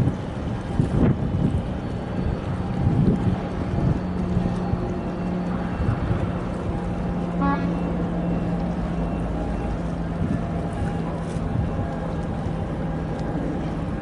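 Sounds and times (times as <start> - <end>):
boat engine humming: 0.0 - 14.0
water noise: 0.0 - 14.0
wind: 0.0 - 14.0.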